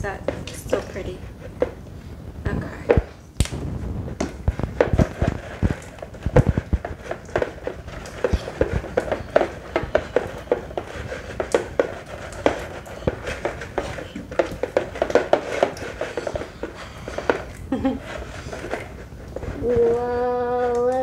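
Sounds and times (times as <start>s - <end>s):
slime squishing by hand: 2.5s - 21.0s.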